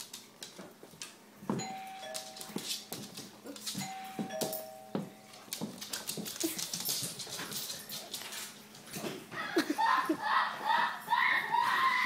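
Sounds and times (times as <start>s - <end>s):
dog scuffling on wooden floor: 0.0s - 9.4s
shrill scream-like cries: 9.8s - 12.0s.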